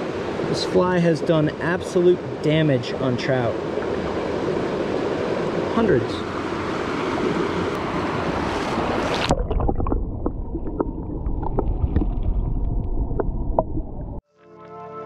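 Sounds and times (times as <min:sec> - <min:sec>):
muffled underwater current rumble: 0:08.6 - 0:14.2.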